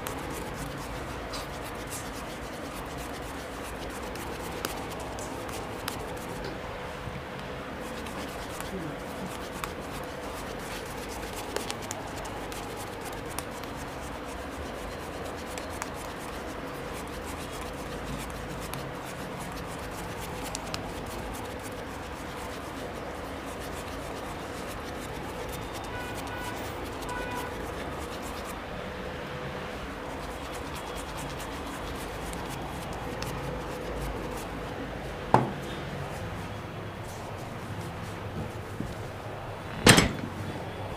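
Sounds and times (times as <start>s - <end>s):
shaving brush rubbing on skin: 0.0s - 6.4s, 7.8s - 28.6s, 29.9s - 34.6s.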